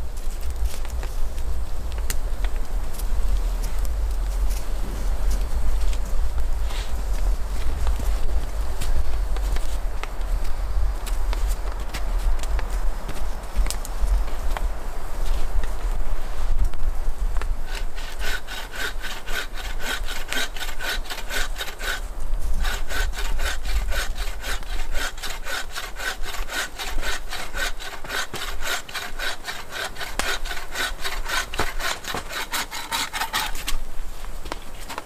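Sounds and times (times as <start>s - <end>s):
hand saw cutting wood: 17.7s - 33.8s.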